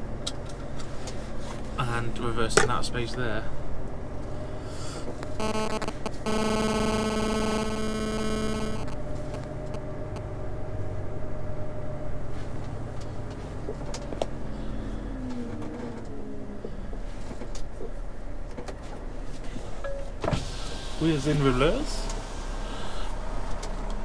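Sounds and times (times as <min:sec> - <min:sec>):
diesel engine at low revs: 0:00.0 - 0:24.0
steady electronic tone: 0:05.2 - 0:10.2.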